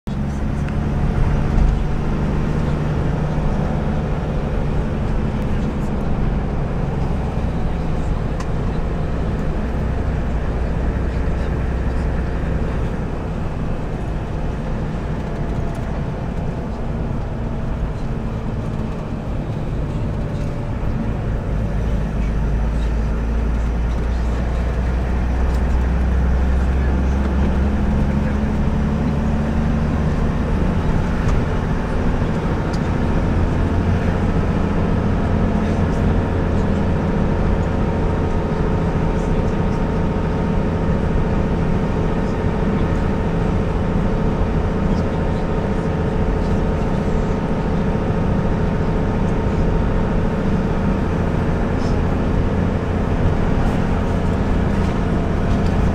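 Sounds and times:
road and wind noise: 0.0 - 55.9
vehicle engine drone: 0.0 - 55.9.

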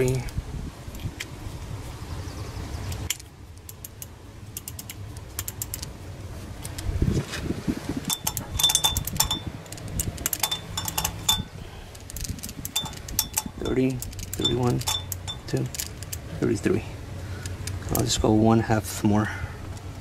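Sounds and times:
socket ratchet clicking: 3.1 - 5.9, 8.1 - 16.3.

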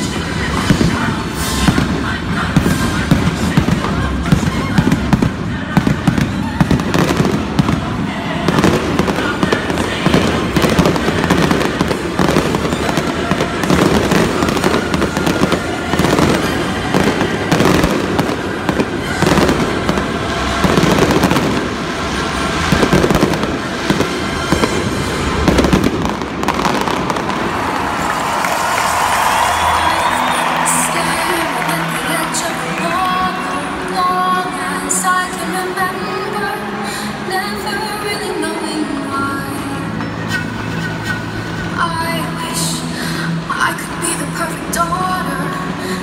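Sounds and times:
fireworks booming and crackling: 0.0 - 29.7
music playing: 0.0 - 46.0.

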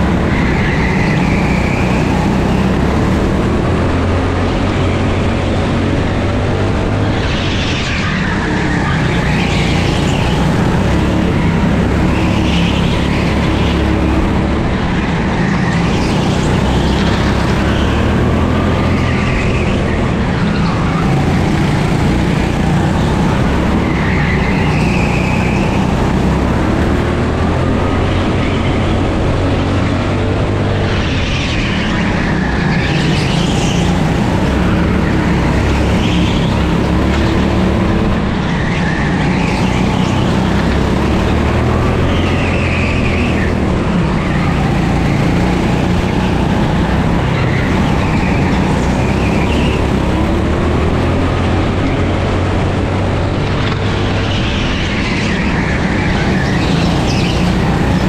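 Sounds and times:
kart engine running: 0.0 - 58.0
tyre squeals: 38.3 - 50.4, 53.6 - 58.0.

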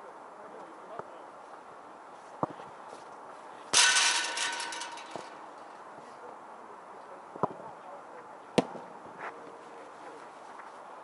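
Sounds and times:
ball clanging on metal: 3.8 - 5.8.

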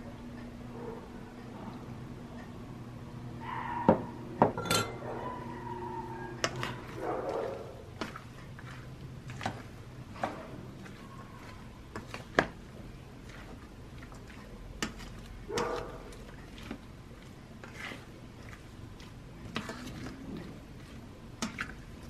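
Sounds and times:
spoon clinking against metal bowl: 4.5 - 5.0.

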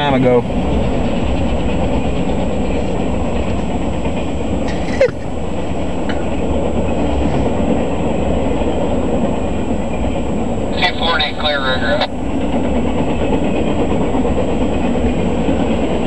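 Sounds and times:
freight train wheels rumbling on rail: 0.0 - 16.0.

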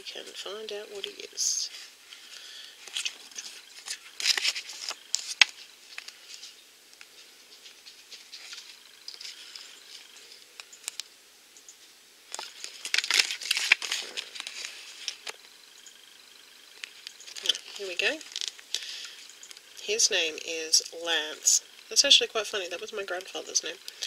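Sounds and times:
paper card rustling: 1.7 - 11.1, 12.3 - 15.4.

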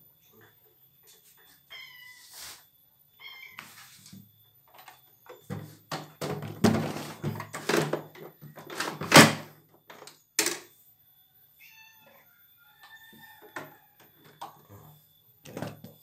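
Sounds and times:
knocks and thumps of objects: 5.3 - 10.6.

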